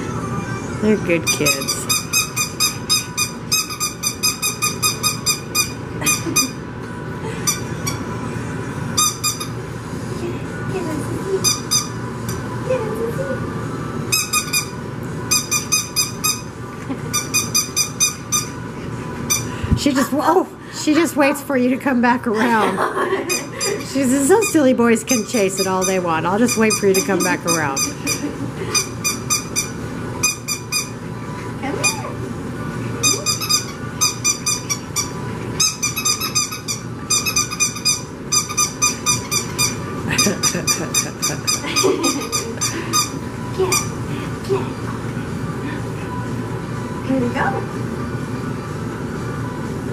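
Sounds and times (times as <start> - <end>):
squeaky dog toy squeaking: 1.2 - 6.6, 11.4 - 12.0, 14.1 - 14.7, 15.3 - 16.5, 17.1 - 18.5, 25.6 - 30.9, 33.0 - 39.8.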